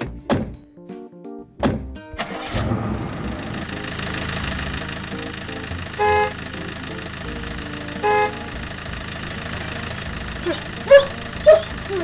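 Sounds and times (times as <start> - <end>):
cartoon vehicle horn toot: 6.0 - 6.6, 8.0 - 8.6
cartoon voice cry: 10.4 - 12.0.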